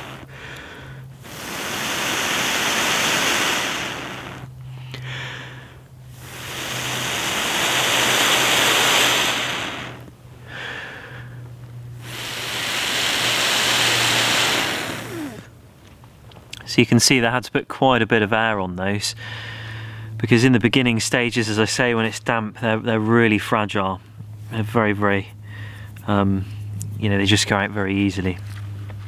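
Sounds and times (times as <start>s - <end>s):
person blowing breaths: 0.0s - 15.5s, 19.2s - 20.2s, 25.4s - 26.8s.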